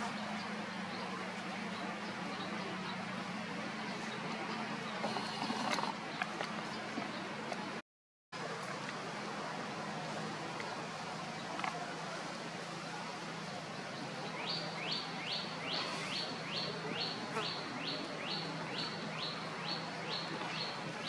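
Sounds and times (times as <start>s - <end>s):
steady background hiss: 8.4s - 21.0s.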